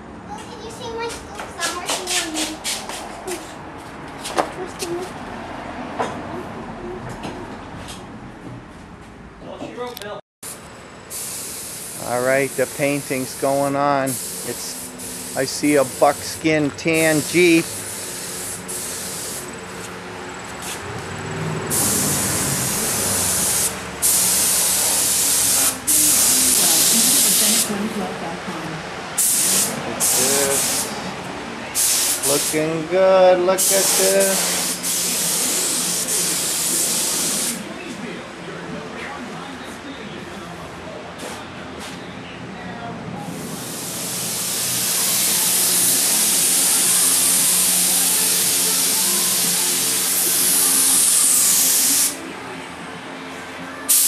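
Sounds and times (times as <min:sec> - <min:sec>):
spray gun hissing: 0:11.1 - 0:19.6, 0:21.7 - 0:27.7, 0:29.2 - 0:31.0, 0:31.8 - 0:32.8, 0:33.6 - 0:37.6, 0:43.5 - 0:52.2.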